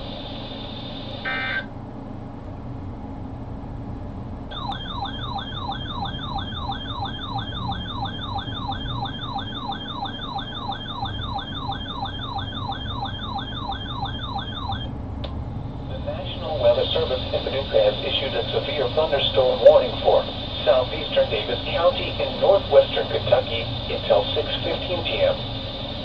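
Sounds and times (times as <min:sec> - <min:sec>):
electronic siren yelp: 0:00.0 - 0:01.7, 0:04.5 - 0:14.9.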